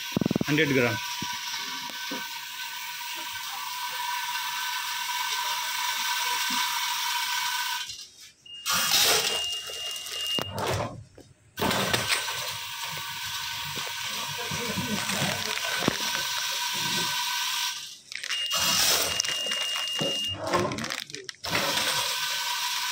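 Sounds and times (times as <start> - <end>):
machine motor hum: 11.6 - 17.9.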